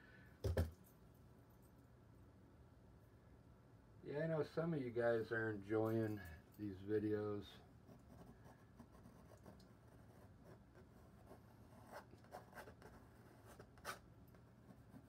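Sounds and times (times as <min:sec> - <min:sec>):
painting knife scraping canvas: 0:08.0 - 0:15.0.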